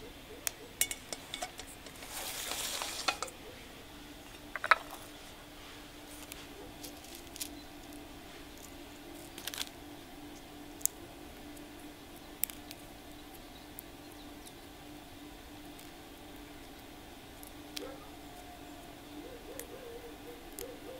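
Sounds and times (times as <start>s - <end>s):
faint steady hum: 0.0s - 20.9s
cardamom pods cracking: 0.4s - 3.6s, 4.2s - 20.9s
seeds dropping into stone mortar: 0.8s - 3.4s, 4.3s - 5.3s.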